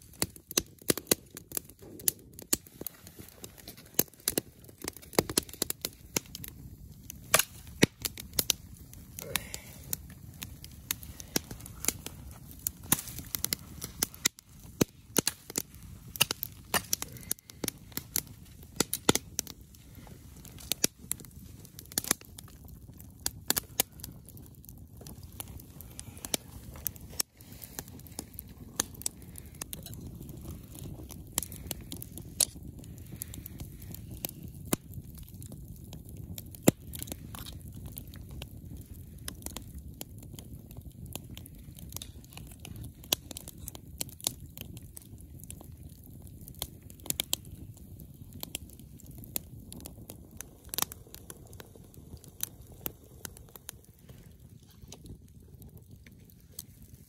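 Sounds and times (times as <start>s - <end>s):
campfire crackling and popping: 0.0s - 57.0s.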